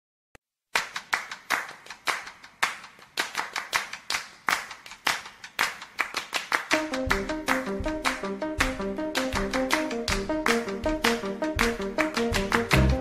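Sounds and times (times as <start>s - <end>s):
hand clapping echoing: 0.7s - 13.0s.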